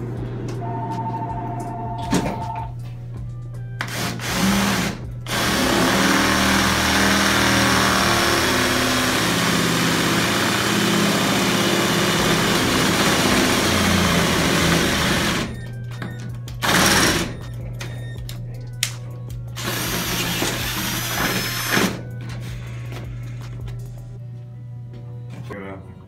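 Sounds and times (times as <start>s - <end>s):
cordless drill boring through metal: 3.9s - 15.6s, 16.6s - 17.4s, 19.6s - 22.0s.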